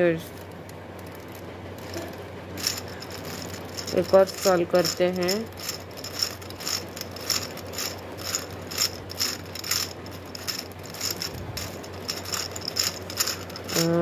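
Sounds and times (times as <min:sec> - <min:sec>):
plastic gears clicking and rattling: 0:00.2 - 0:14.0.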